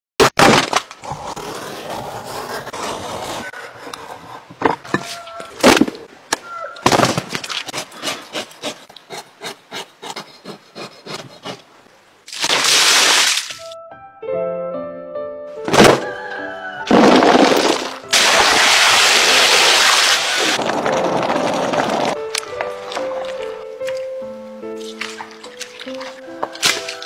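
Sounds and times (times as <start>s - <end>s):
blade scraping fat off hide: 24.8s - 27.0s.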